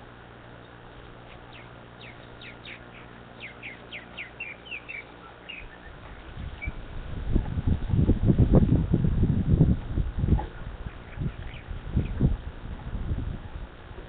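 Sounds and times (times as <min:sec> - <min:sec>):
bird chirping in descending run: 0:01.5 - 0:06.0.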